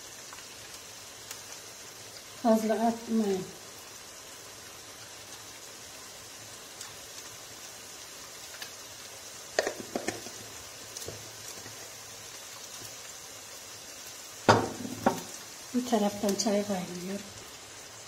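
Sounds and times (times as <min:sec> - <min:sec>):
crackles: 0:00.0 - 0:18.0
onions and meat sizzling in a pan: 0:00.0 - 0:18.0.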